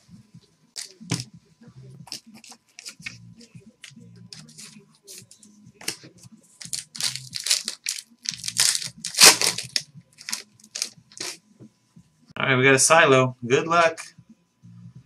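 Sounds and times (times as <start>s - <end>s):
foil pack tearing and crinkling: 6.6s - 11.4s.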